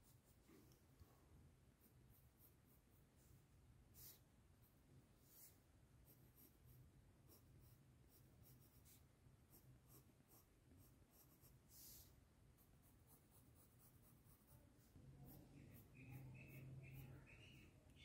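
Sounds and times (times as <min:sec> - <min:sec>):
scrape: 0:00.2 - 0:01.3, 0:05.2 - 0:05.6, 0:11.7 - 0:12.2.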